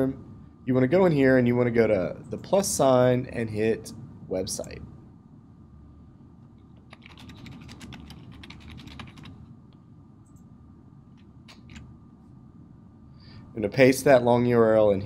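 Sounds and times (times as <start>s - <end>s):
typing on computer keyboard: 6.8s - 9.4s, 11.1s - 11.9s.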